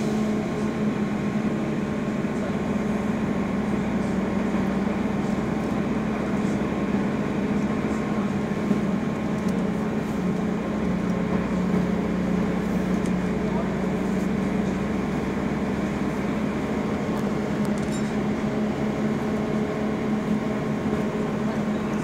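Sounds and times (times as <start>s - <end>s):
road noise inside vehicle: 0.0s - 22.0s
vehicle engine drone: 0.0s - 22.0s.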